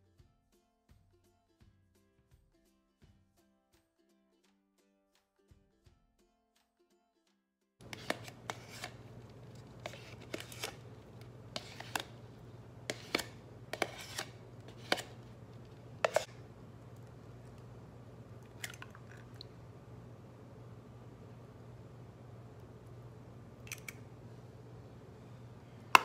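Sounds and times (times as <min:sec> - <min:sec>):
utensils clicking and scraping: 0:07.8 - 0:17.6
steady low hum: 0:07.8 - 0:26.0.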